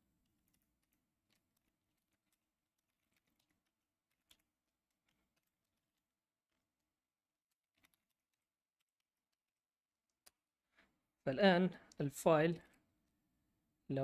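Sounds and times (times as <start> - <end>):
faint keyboard typing: 0.2 - 10.4.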